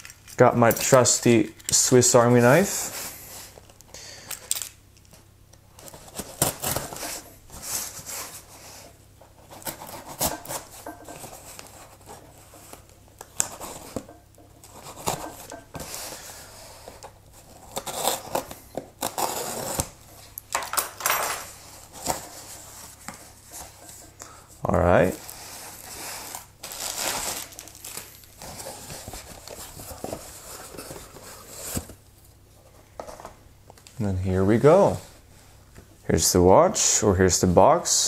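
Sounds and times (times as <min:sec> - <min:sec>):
knife cutting packing tape: 0:05.9 - 0:07.2, 0:09.5 - 0:10.8, 0:17.5 - 0:20.0
cardboard scraping and rustling: 0:25.1 - 0:32.0.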